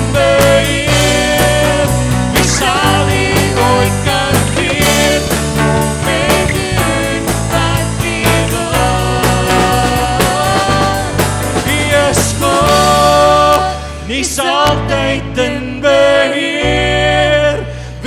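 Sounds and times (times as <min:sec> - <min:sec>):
rock band playing worship song: 0:00.0 - 0:18.0.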